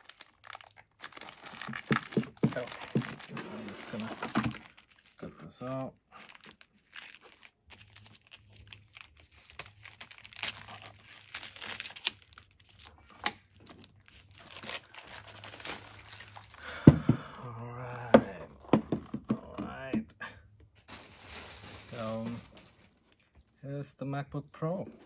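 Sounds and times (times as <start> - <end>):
plastic bag crinkling: 0.0 - 5.5, 6.1 - 16.9, 20.8 - 23.6.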